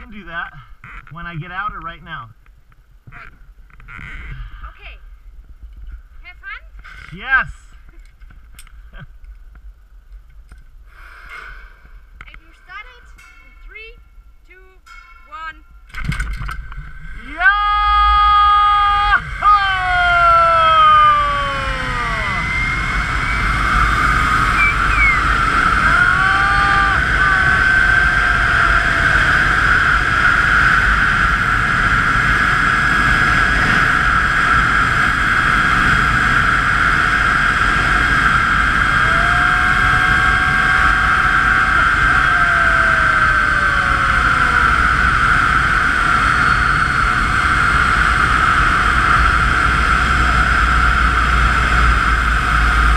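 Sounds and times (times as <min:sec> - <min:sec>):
wind rumble on microphone: 0:00.0 - 0:52.9
zip-line trolley whine: 0:17.1 - 0:52.9
person yelling: 0:17.2 - 0:22.6, 0:25.8 - 0:29.5, 0:39.0 - 0:44.9.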